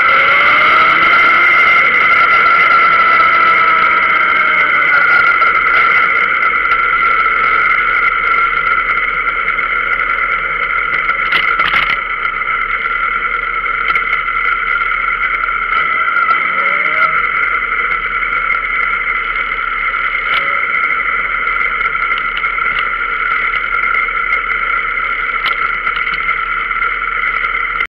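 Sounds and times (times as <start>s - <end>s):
motorcycle engine humming: 0.0s - 27.9s.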